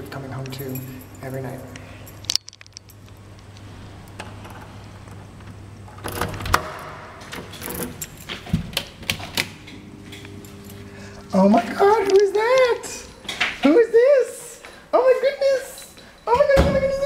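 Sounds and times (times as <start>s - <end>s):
low steady hum: 0.0s - 15.0s
keys jangling: 0.2s - 3.6s, 7.4s - 8.6s, 10.4s - 17.0s
door lock clicking: 2.3s - 10.4s.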